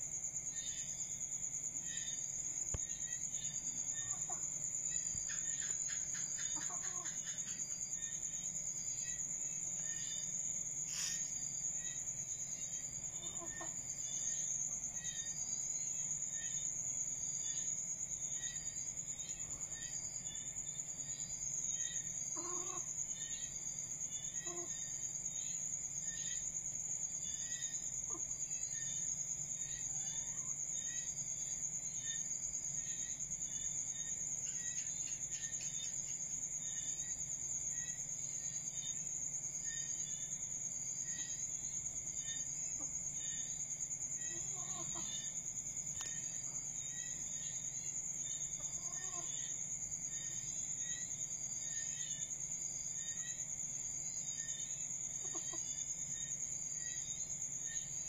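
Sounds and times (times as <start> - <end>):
high-pitched insect trill: 0.0 - 58.0
junglefowl clucking: 6.3 - 7.2, 22.4 - 22.9, 55.2 - 55.6.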